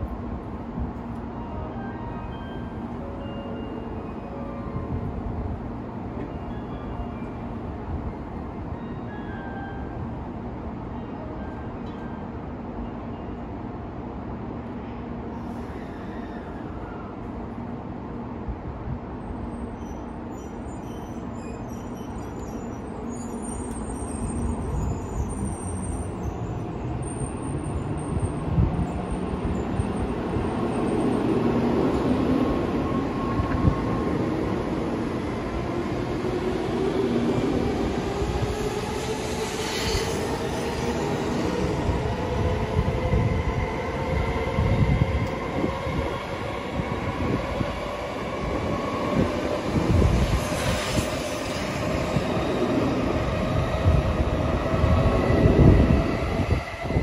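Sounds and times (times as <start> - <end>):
wheels rumbling on rail: 18.8 - 57.0.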